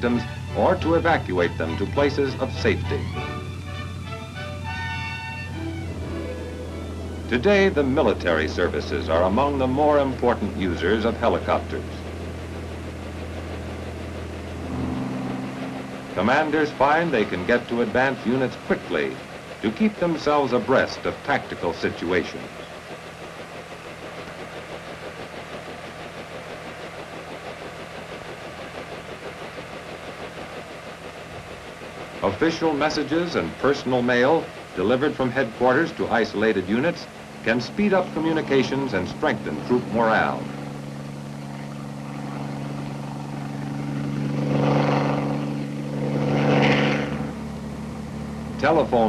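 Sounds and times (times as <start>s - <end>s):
engine low drone: 0.0s - 49.0s.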